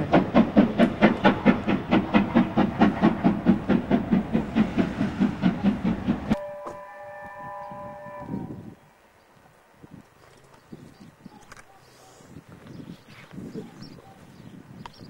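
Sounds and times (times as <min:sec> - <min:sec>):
steam locomotive exhaust beats: 0:00.0 - 0:08.8
distant multi-tone steam whistle: 0:06.3 - 0:08.8.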